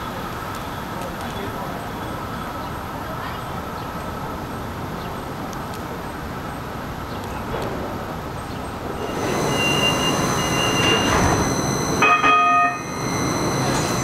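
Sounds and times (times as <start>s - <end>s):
light rail car rumble: 0.0s - 14.0s
steady high whine: 8.8s - 14.0s
wheel squeals: 8.8s - 14.0s.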